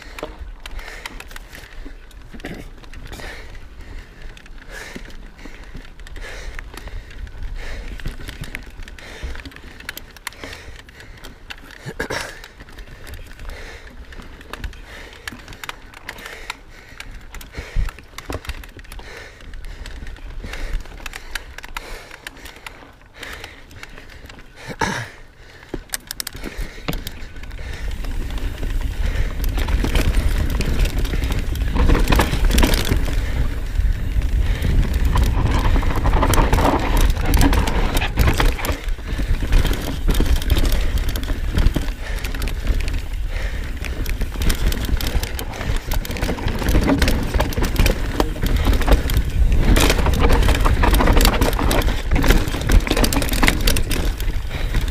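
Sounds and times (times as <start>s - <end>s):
bike rattling and clicking: 0.0s - 54.9s
bike tyres rolling over dirt: 0.0s - 54.9s
wind rumble on microphone: 27.6s - 54.9s.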